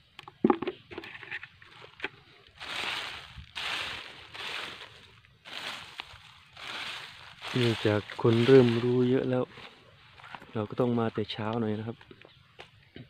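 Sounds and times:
footsteps crunching through dry leaves: 1.6 - 11.0.

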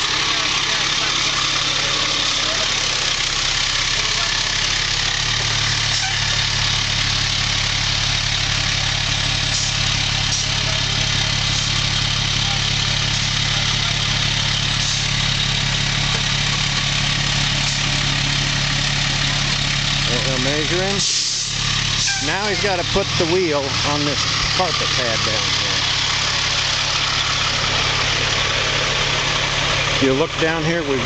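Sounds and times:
fire truck engine idling low: 0.0 - 31.0.

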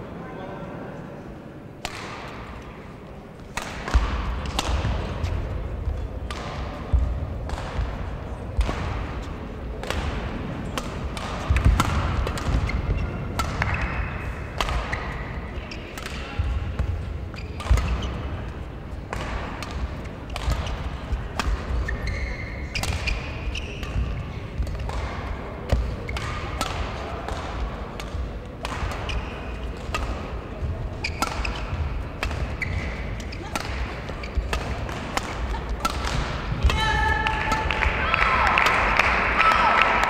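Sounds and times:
rackets hitting shuttlecock: 1.8 - 2.7, 3.4 - 39.3
shoes squeaking on court floor: 12.3 - 18.6, 19.8 - 24.9, 28.4 - 36.6.

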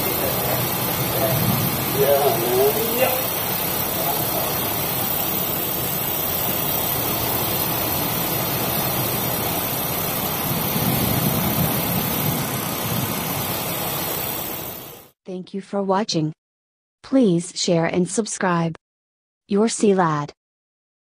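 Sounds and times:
loud rushing noise: 0.0 - 15.1.

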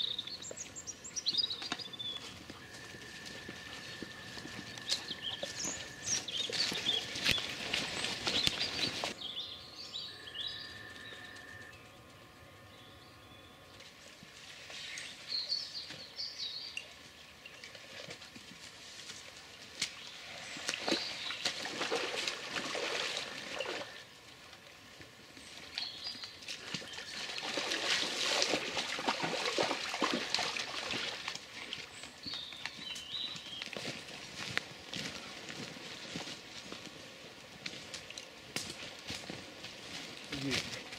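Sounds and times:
splashing through shallow stream: 2.7 - 9.2, 17.7 - 24.0, 26.4 - 32.7
small birds chirping: 3.9 - 13.6, 32.0 - 33.9
stream trickling: 19.3 - 24.8, 25.5 - 32.8.

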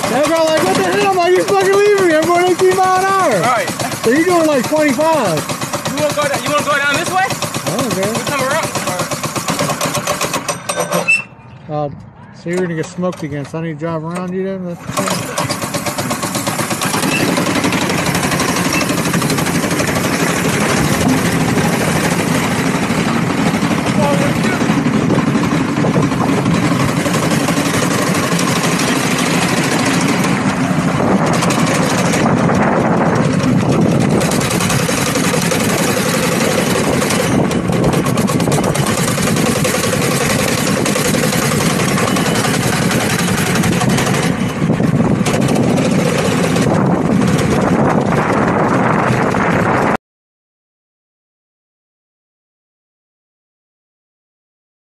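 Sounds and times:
go-kart engine droning: 0.0 - 11.2, 14.8 - 49.9.

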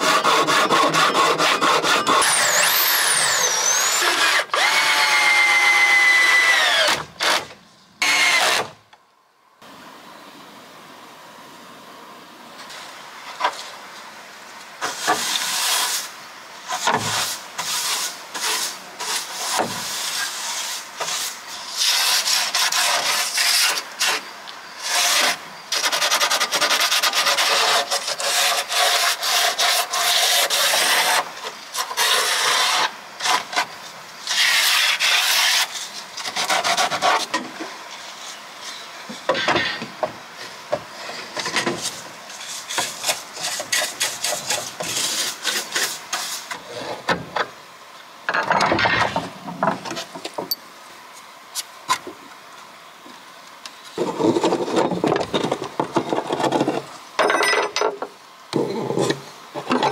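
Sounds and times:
abrasive scraping on wood: 0.0 - 5.0.

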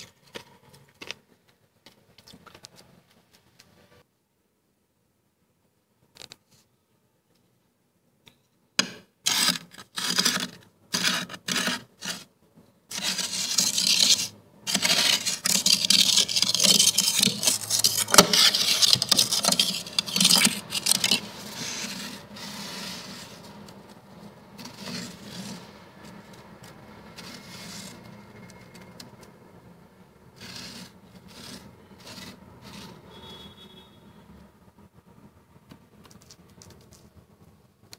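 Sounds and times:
plate scraping freezer frost: 9.3 - 12.3, 12.9 - 26.4, 27.1 - 29.1, 30.3 - 33.7.

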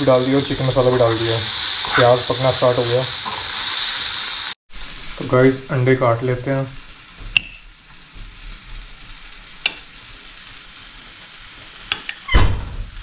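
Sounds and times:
onions sizzling in a pan: 0.0 - 13.0
heavy thump: 12.4 - 13.0.

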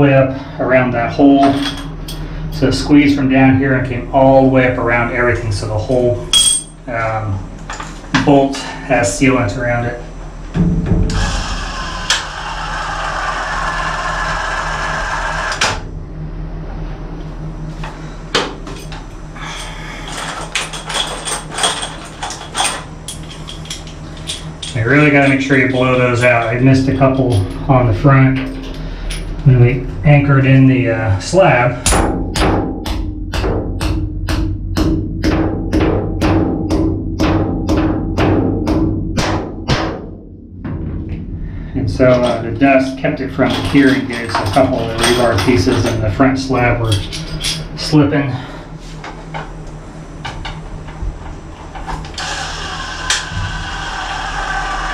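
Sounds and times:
sledge hammer striking metal anchor: 31.8 - 40.1.

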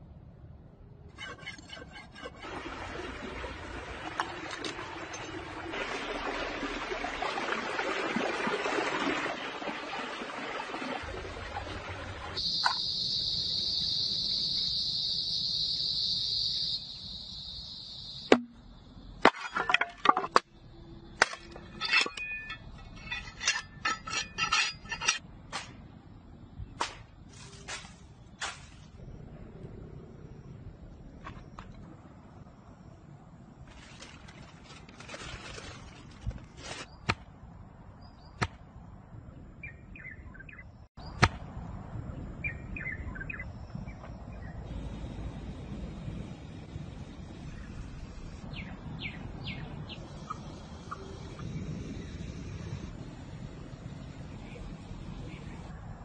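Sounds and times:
blade scraping on stone: 1.2 - 2.4, 21.2 - 25.2.

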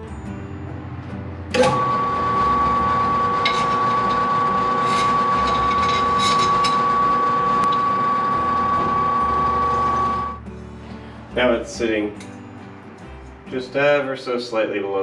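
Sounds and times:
drill press whining: 1.5 - 10.4
cutter scraping aluminum: 1.6 - 10.3.

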